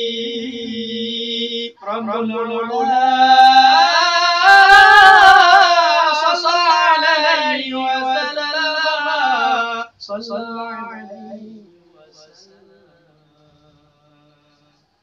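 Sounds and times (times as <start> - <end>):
man singing devotional chant: 0.0 - 15.0.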